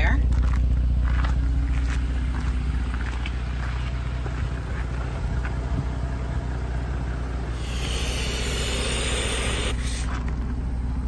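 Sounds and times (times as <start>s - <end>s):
idling vehicle hum: 0.0s - 11.0s
compressed air hissing: 7.5s - 10.2s.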